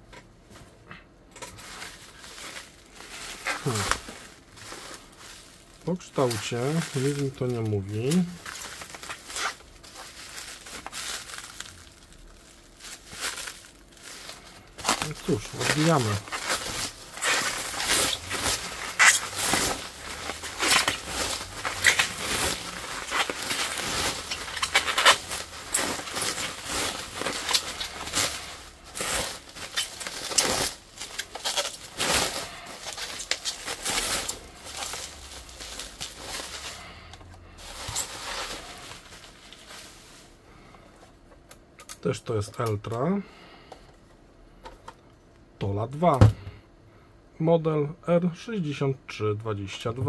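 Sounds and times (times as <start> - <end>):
bubble wrap crinkling: 1.5 - 41.2.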